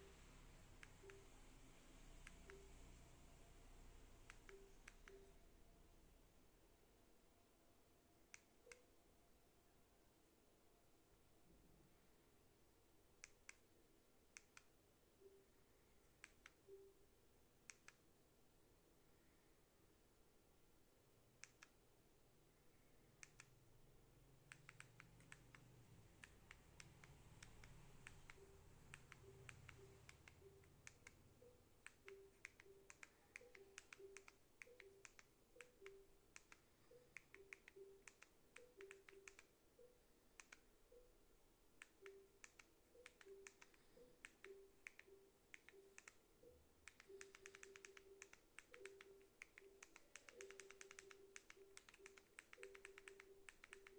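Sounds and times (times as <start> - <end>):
remote buttons clicking: 0.0 - 1.5, 2.2 - 2.8, 4.2 - 5.4, 8.2 - 9.0, 13.2 - 13.7, 14.3 - 15.4, 16.0 - 17.0, 17.6 - 18.0, 21.4 - 21.8, 23.2 - 23.6, 24.5 - 41.1, 41.7 - 53.9.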